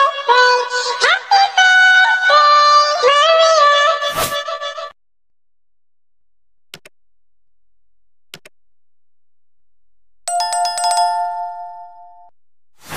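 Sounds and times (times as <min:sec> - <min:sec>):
notification bell chime: 0:10.3 - 0:12.3.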